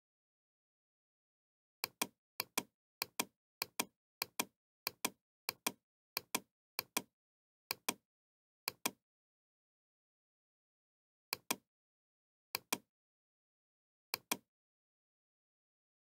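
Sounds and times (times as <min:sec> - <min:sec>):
computer mouse clicking: 0:01.8 - 0:07.1, 0:07.7 - 0:08.0, 0:08.7 - 0:09.0, 0:11.3 - 0:11.6, 0:12.6 - 0:12.9, 0:14.2 - 0:14.4.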